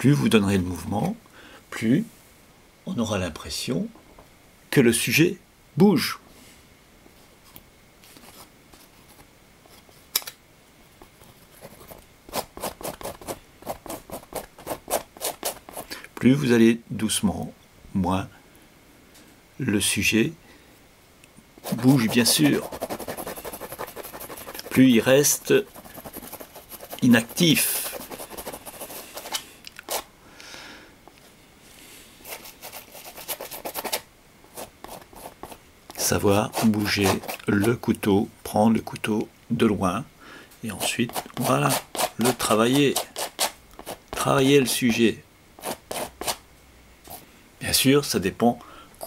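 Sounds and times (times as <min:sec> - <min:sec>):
palette knife scraping paint: 0:11.1 - 0:15.9, 0:21.6 - 0:30.1, 0:32.2 - 0:37.8, 0:40.8 - 0:45.0, 0:45.6 - 0:46.4.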